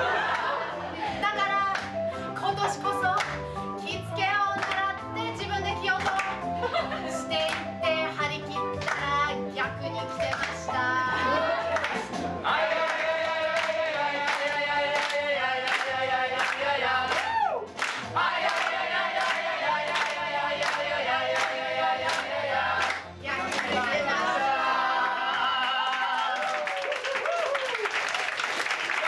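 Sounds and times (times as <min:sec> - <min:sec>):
group singing in chorus: 0:10.4 - 0:26.0.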